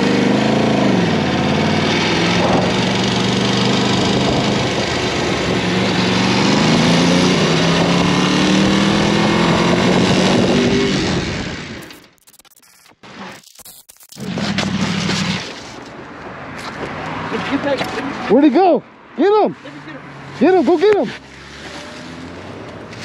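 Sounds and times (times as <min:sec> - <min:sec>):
motorcycle engine revving: 0:00.0 - 0:12.2, 0:14.2 - 0:15.8
wind noise: 0:02.2 - 0:03.1, 0:03.9 - 0:06.0, 0:07.4 - 0:11.8.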